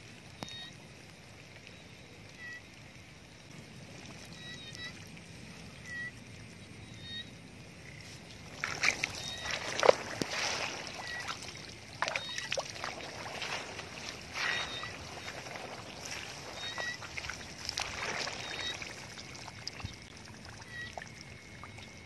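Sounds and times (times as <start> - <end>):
muddy water splashing: 7.1 - 22.0.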